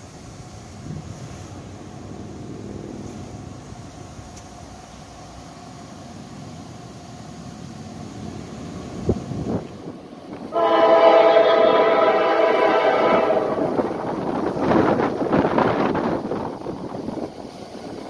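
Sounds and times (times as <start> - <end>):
train air horn blast: 10.5 - 14.0
wind buffeting microphone: 13.0 - 18.0.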